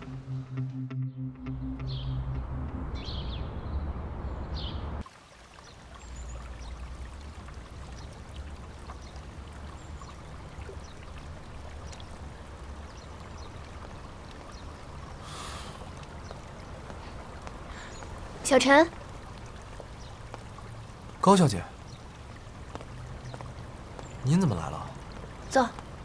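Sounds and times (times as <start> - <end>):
background music with deep bass: 0.0 - 5.0
rushing water noise: 4.3 - 26.0.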